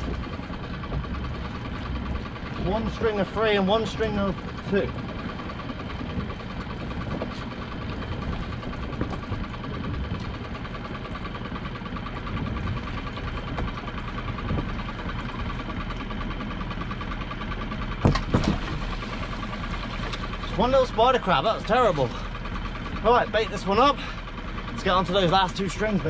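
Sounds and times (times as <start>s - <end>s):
boat engine idling: 0.0s - 26.0s
pot knocking against boat: 18.0s - 18.9s.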